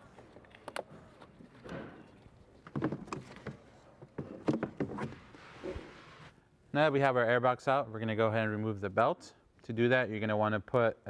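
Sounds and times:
plastic scraping and knocking: 0:02.6 - 0:05.2.

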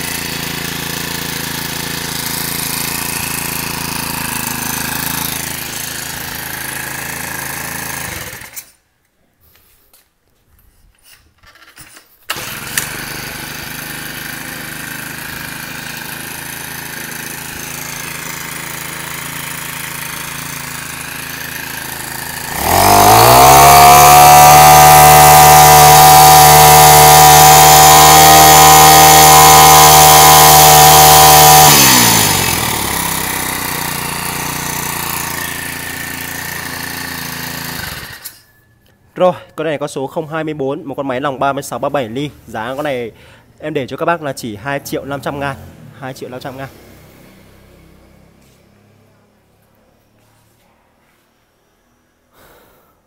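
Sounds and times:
brush-cutter engine idling and revving: 0:00.0 - 0:08.7, 0:12.3 - 0:38.5, 0:45.0 - 0:48.6.

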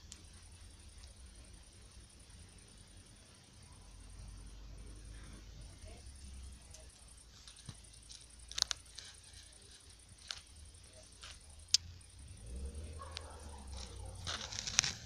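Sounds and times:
faint low hum: 0:00.0 - 0:15.0
sharp clicks: 0:11.2 - 0:12.0.

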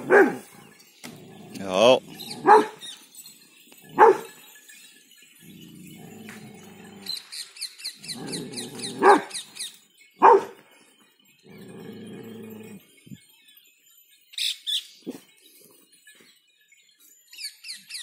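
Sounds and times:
dog barking deep and loud: 0:00.0 - 0:00.6, 0:02.2 - 0:02.8, 0:03.9 - 0:04.4, 0:08.2 - 0:09.4, 0:10.2 - 0:10.6
dog growling: 0:01.1 - 0:02.8, 0:05.4 - 0:07.2, 0:08.0 - 0:09.4, 0:11.5 - 0:12.9.

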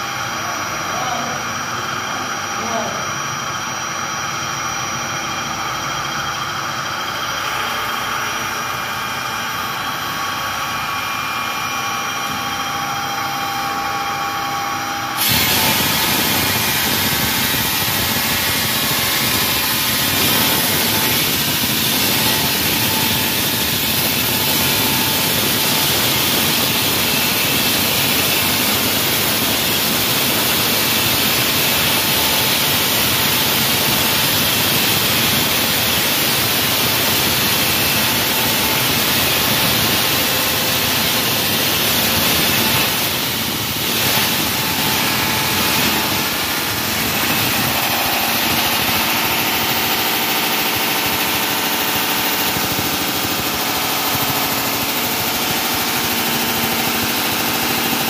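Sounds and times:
wall saw whining: 0:07.0 - 0:58.0
harsh rushing noise: 0:15.2 - 0:58.0.

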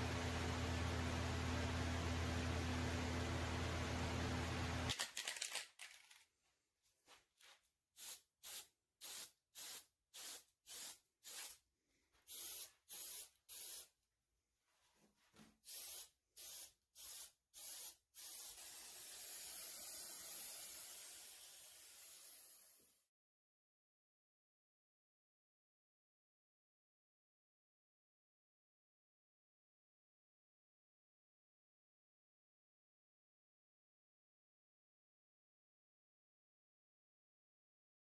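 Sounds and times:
aerosol can spraying: 0:08.0 - 0:11.6, 0:12.3 - 0:13.9, 0:15.6 - 0:23.0.

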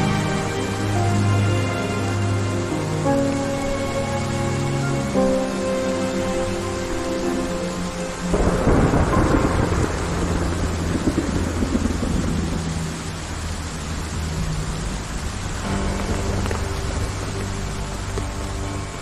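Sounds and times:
heavy rain pouring: 0:00.0 - 0:19.0
soft background music: 0:00.0 - 0:19.0
thunder clap and rumble: 0:08.2 - 0:18.3.

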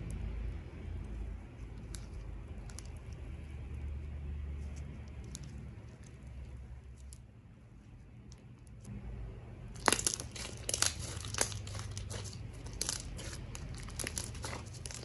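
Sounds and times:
slime stretching: 0:09.7 - 0:15.0.

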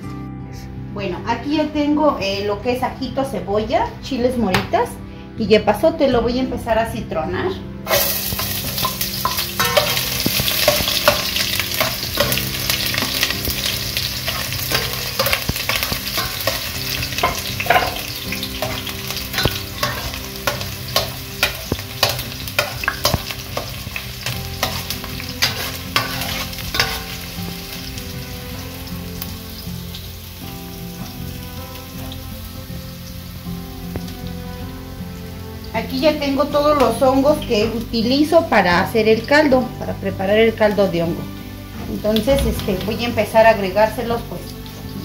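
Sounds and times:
food sizzling in hot oil: 0:07.8 - 0:45.0.

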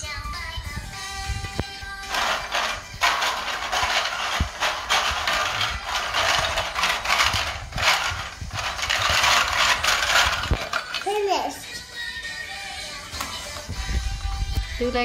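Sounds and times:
plastic toys clattering in glass bowl: 0:02.1 - 0:11.4.

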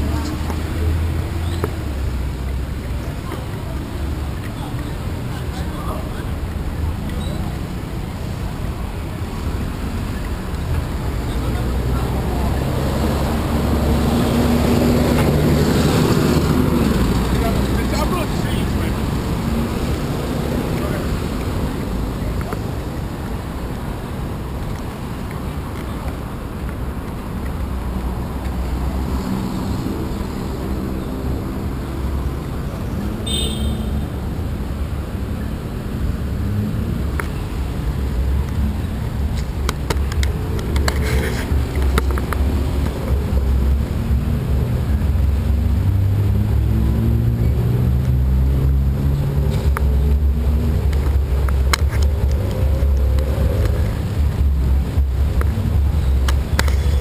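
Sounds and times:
vehicle accelerating: 0:00.0 - 0:33.2, 0:34.1 - 0:57.0
traffic rumble: 0:00.0 - 0:57.0.

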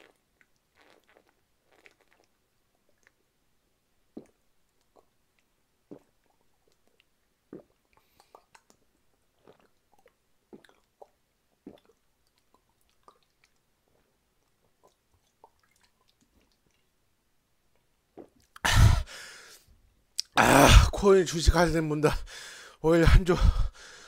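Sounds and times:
person gulping a drink: 0:00.0 - 0:03.3, 0:04.1 - 0:16.9, 0:17.7 - 0:19.2, 0:20.2 - 0:20.9
mouth and throat clicks: 0:04.1 - 0:16.9, 0:17.7 - 0:18.7, 0:20.2 - 0:20.4.

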